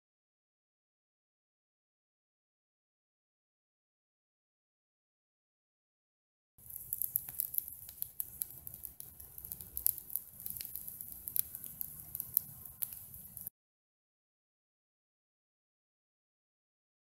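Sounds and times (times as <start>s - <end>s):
campfire crackling: 6.6s - 13.5s
sharp pops and snaps of burning sticks: 6.6s - 13.5s.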